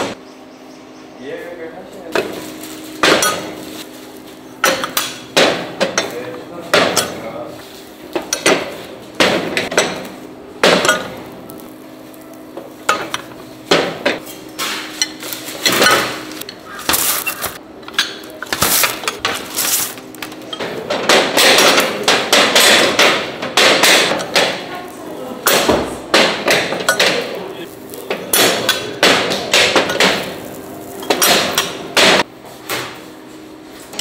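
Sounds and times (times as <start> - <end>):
metal moulds clanking and knocking: 20.4 - 24.6.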